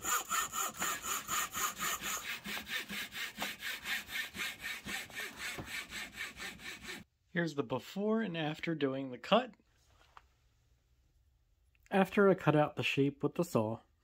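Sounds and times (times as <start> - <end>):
hand saw cutting wood: 0.0 - 7.1.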